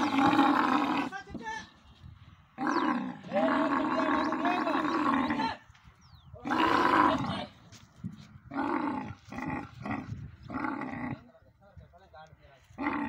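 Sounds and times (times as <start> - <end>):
camel calling: 0.0 - 5.7, 6.3 - 7.7, 8.3 - 11.3, 12.7 - 13.0.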